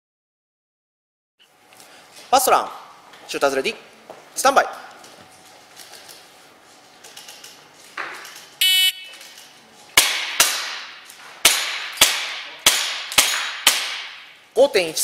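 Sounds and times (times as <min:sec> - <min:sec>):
shot timer beep: 0:08.6 - 0:09.1
airsoft pistol shots: 0:10.0 - 0:14.3.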